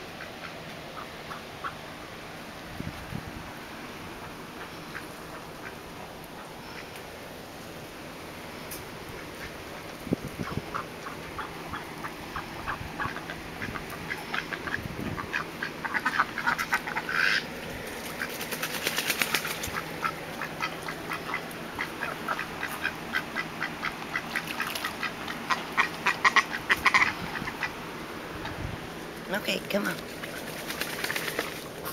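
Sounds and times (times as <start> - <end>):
ducks quacking: 0.1 - 1.8, 4.2 - 7.0, 9.1 - 28.7.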